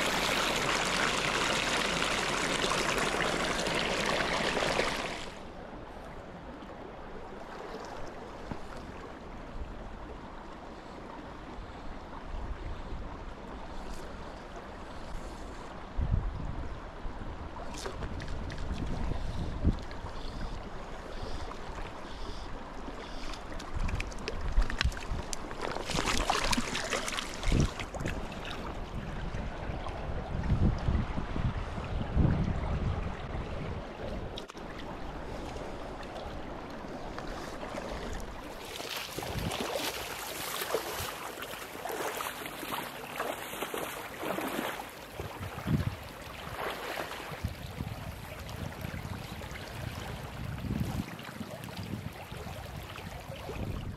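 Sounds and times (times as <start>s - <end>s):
stream running over rocks: 0.0s - 5.6s, 22.6s - 29.4s, 34.2s - 53.9s
wind buffeting microphone: 15.2s - 20.6s, 27.3s - 34.4s, 39.1s - 40.1s, 45.1s - 53.9s
boots sloshing through water: 23.2s - 28.8s, 34.4s - 53.7s.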